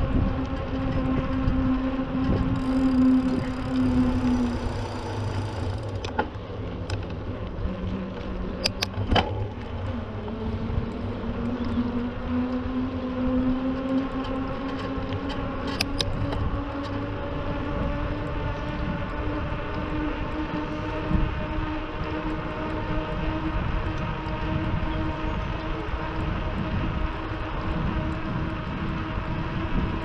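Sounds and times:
vehicle engine humming: 0:00.0 - 0:30.0
sharp clicks: 0:08.6 - 0:09.2.

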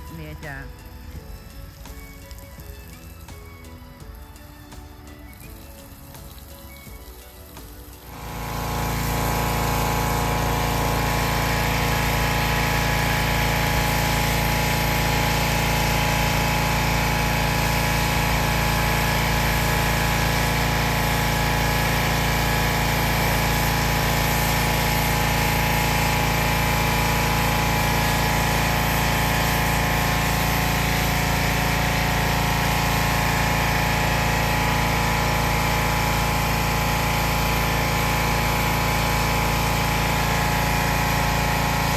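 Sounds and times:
pressure washer running: 0:00.0 - 0:41.9.

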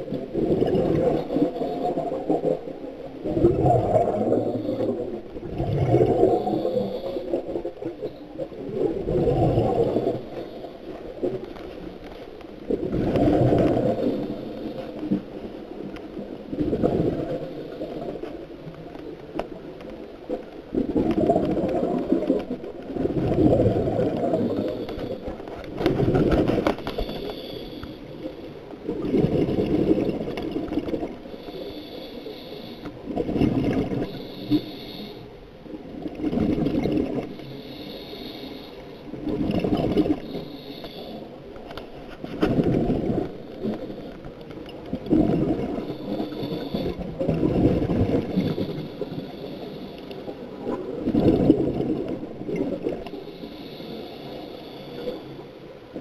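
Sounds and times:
scuba regulator bubbling exhale: 0:00.1 - 0:11.4, 0:12.7 - 0:15.3, 0:16.4 - 0:18.2, 0:20.7 - 0:35.3, 0:35.9 - 0:41.3, 0:44.9 - 0:55.4
regulator inhale hiss: 0:04.2 - 0:05.2, 0:06.2 - 0:08.2, 0:09.8 - 0:11.0, 0:13.6 - 0:15.0, 0:17.4 - 0:18.1, 0:24.4 - 0:25.5, 0:26.7 - 0:28.5, 0:31.2 - 0:33.1, 0:33.9 - 0:35.4, 0:37.3 - 0:39.2, 0:40.0 - 0:41.6, 0:45.7 - 0:47.2, 0:48.2 - 0:50.6, 0:53.0 - 0:55.7.

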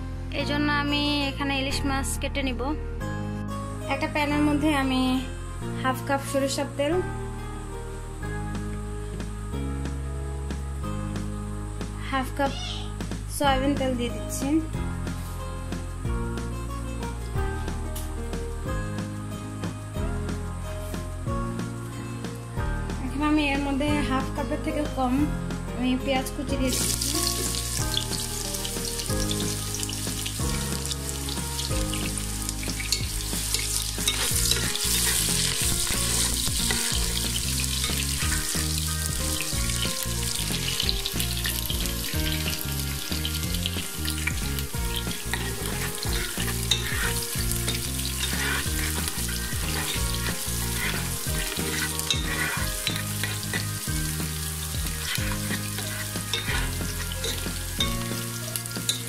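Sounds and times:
onions sizzling in oil: 0:26.5 - 0:59.0
spatula stirring: 0:26.7 - 0:59.0.

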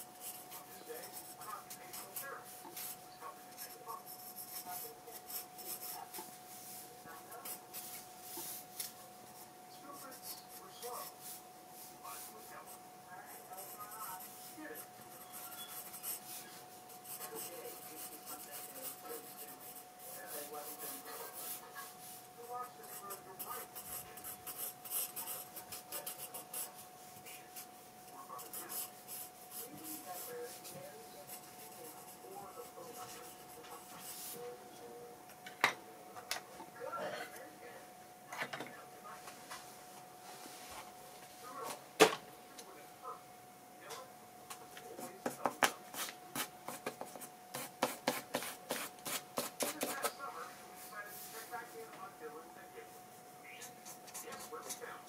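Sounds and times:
pencil scratching on paper: 0:00.0 - 0:08.6, 0:12.1 - 0:26.8, 0:28.3 - 0:34.4, 0:45.0 - 0:50.1, 0:53.6 - 0:55.0.

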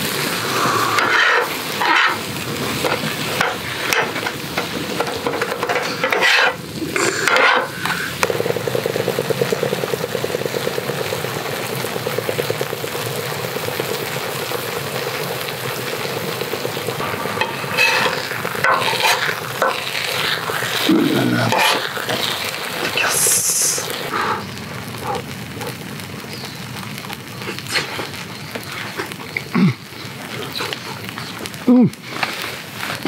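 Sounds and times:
batter sizzling on griddle: 0:00.0 - 0:33.0
metal spatula scraping: 0:01.0 - 0:02.2, 0:05.6 - 0:06.6, 0:07.2 - 0:07.8, 0:17.4 - 0:20.6, 0:21.5 - 0:22.2.

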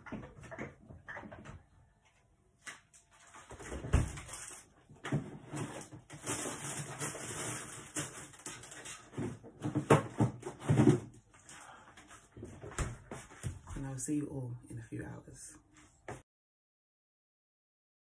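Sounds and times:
kitchen items knocking and rustling: 0:02.9 - 0:13.8.

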